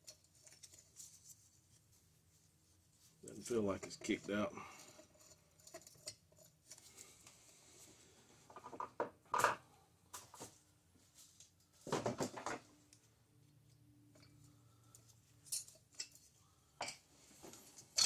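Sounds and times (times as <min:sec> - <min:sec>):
light metallic clinks and knocks: 0:14.0 - 0:18.0.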